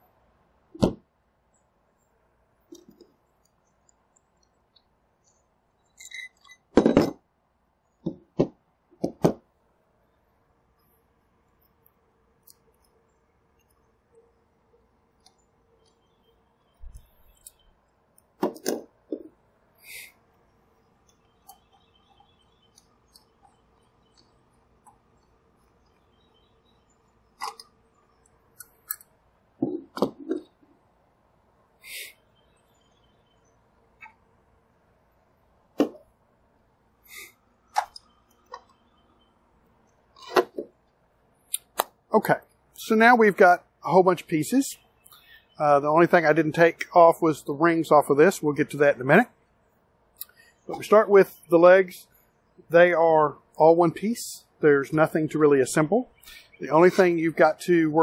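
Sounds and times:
telescope parts clinking and knocking: 5.3 - 7.2
parts clattering on a table: 6.0 - 7.2
brief hiss: 31.8 - 32.2.

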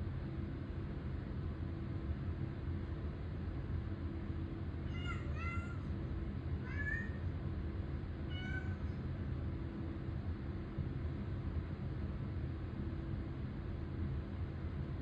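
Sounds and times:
steady low hum: 0.0 - 15.0
cat meowing: 4.9 - 5.9, 6.6 - 7.2, 8.3 - 9.0.

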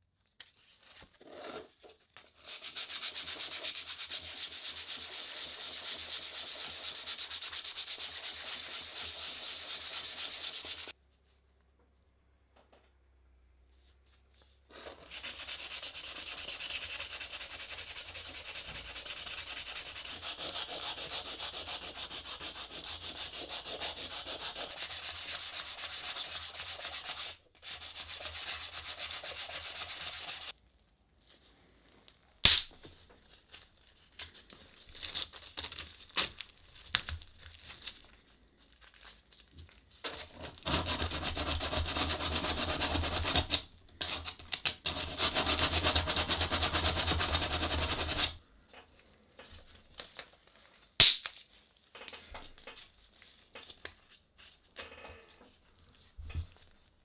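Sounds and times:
sandpaper rubbing on metal: 2.4 - 10.9, 15.2 - 30.5, 45.0 - 48.4.

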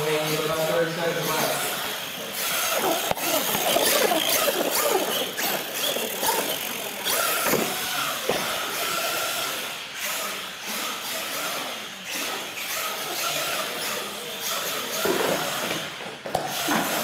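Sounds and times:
electric motors whining: 0.0 - 17.0.

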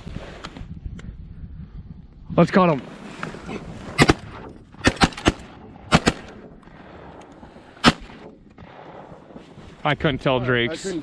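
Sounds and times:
shotgun shots: 4.0 - 6.4, 7.8 - 9.1.

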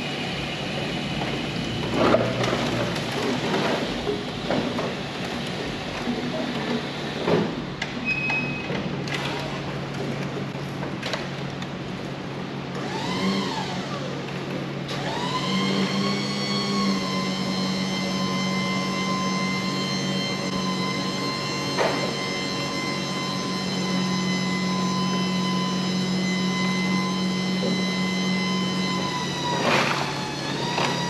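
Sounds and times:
electric motor whine: 12.8 - 14.1, 15.0 - 31.0.

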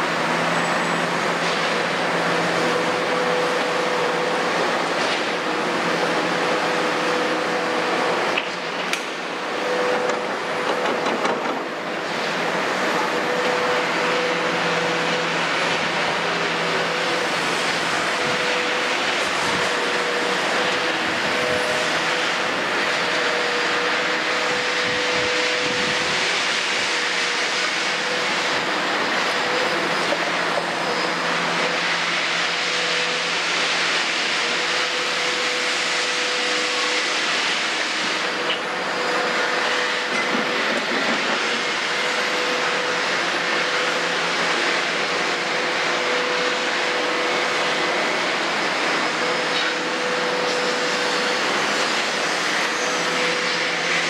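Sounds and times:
excavator digging soil: 0.0 - 34.8, 39.6 - 42.0
excavator engine and hydraulics: 0.0 - 54.0.

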